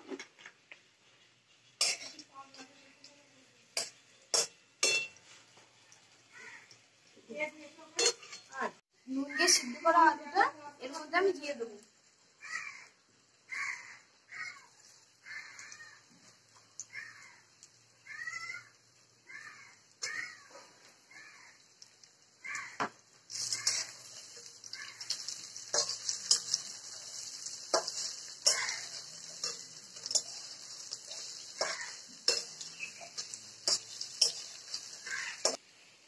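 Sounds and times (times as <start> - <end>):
potatoes sizzling in oil: 0.0 - 36.0
metal spatula clacking on pan: 3.8 - 5.2, 22.8 - 35.6
crows cawing: 6.3 - 6.8, 12.4 - 16.2, 16.8 - 21.7, 22.4 - 24.1, 24.7 - 25.4, 28.4 - 30.5, 31.4 - 32.2, 34.8 - 35.6.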